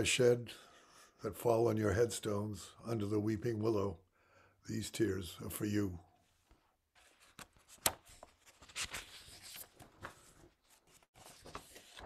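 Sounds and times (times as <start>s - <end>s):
paper sheets rustling: 7.0s - 12.0s.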